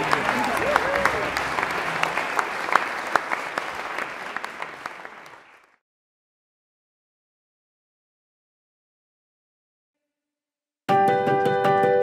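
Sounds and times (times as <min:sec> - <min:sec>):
crowd clapping: 0:00.0 - 0:05.8.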